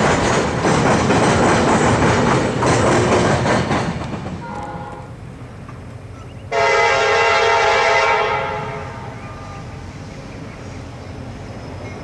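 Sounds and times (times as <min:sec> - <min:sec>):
low train rumble: 0:00.0 - 0:12.0
locomotive air horn blast: 0:04.4 - 0:05.2, 0:06.5 - 0:09.8.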